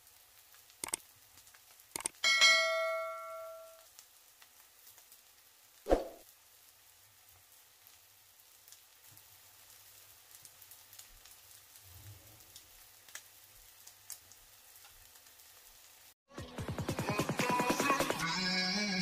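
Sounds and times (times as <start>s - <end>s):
soft ticks: 0.8s - 1.0s, 2.0s - 2.2s
bell-like ding: 2.2s - 3.8s.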